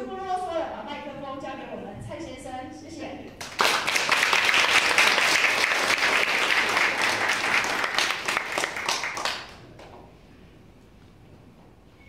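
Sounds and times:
audience applauding: 3.4s - 9.6s.

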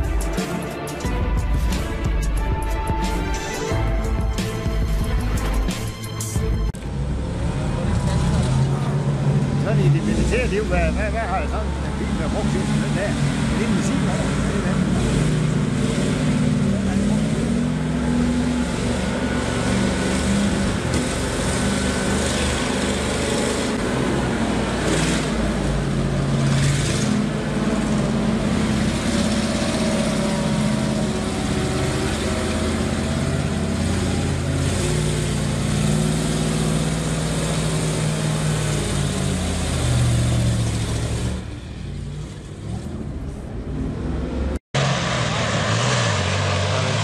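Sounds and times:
truck engine: 0.0s - 47.0s
heavy truck engine revving: 6.6s - 47.0s.

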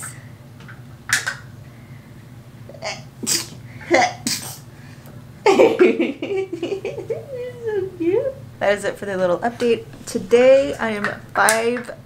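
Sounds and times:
person sneezing: 2.8s - 4.7s.

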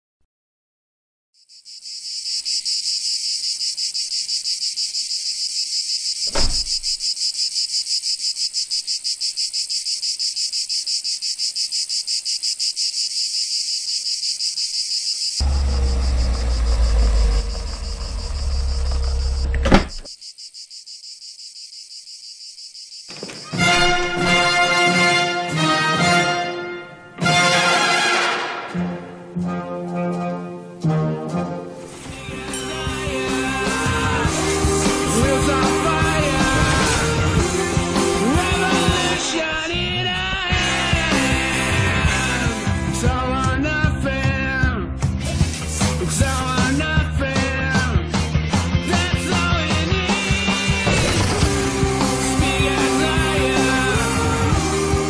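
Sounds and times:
cicadas shrilling: 1.4s - 23.6s
thud: 6.3s - 6.9s, 19.6s - 20.1s
deep rumble: 15.4s - 20.0s
orchestral brass music: 23.6s - 39.2s.

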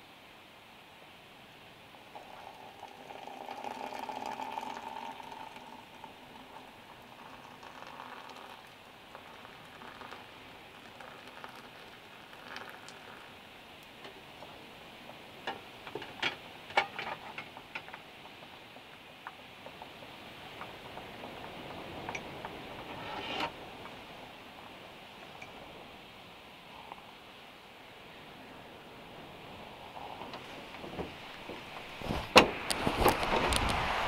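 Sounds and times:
water pouring into a mug: 2.0s - 14.5s.

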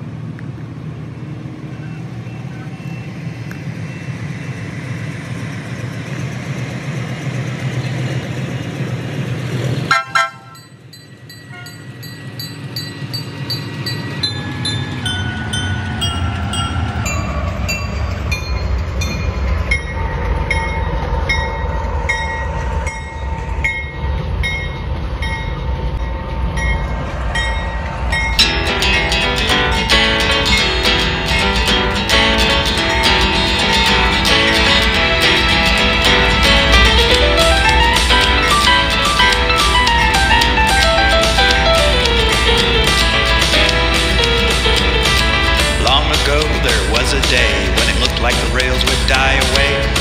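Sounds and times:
locomotive rumble: 0.0s - 50.0s
train wheels clicking over rail joints: 3.4s - 50.0s
train horn: 9.9s - 10.7s, 11.5s - 11.8s.

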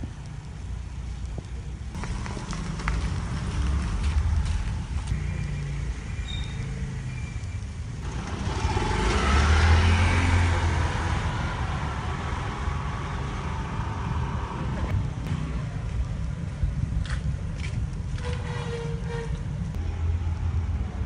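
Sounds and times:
low rumble of street noise: 0.0s - 21.0s
motor scooter passing: 8.0s - 15.6s.

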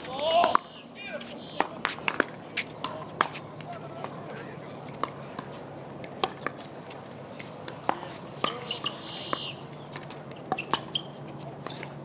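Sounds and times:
faint voices: 0.0s - 12.0s
ball bouncing on hard court: 7.8s - 11.8s.

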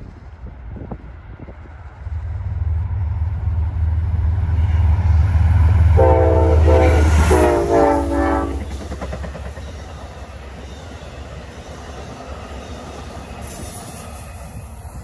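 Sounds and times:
diesel locomotive rumble: 0.0s - 15.0s
train horn chord: 2.4s - 8.8s
train wheel clatter: 8.6s - 15.0s.

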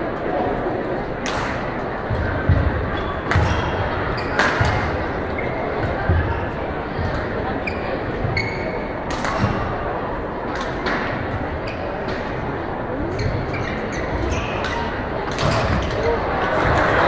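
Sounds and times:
large hall background noise: 0.0s - 17.0s
racket hitting shuttlecock: 1.2s - 5.2s, 9.1s - 9.8s, 10.5s - 11.2s, 14.2s - 16.8s.

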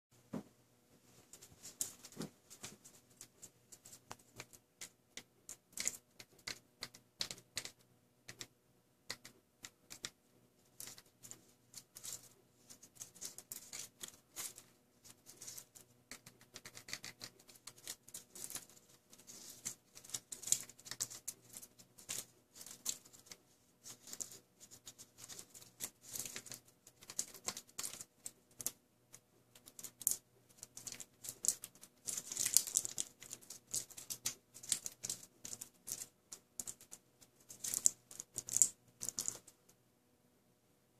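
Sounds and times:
plastic markers tapping together: 4.1s - 10.2s, 15.4s - 39.5s.

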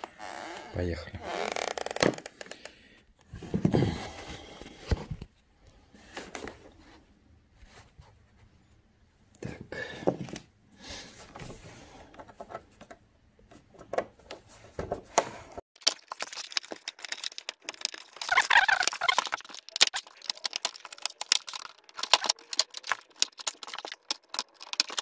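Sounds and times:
plastic creaking: 0.0s - 2.8s, 15.8s - 25.0s.

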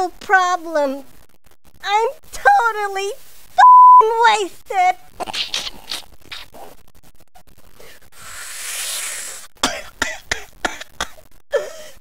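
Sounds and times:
breathy hiss: 7.8s - 9.6s
woman coughing: 9.6s - 12.0s.

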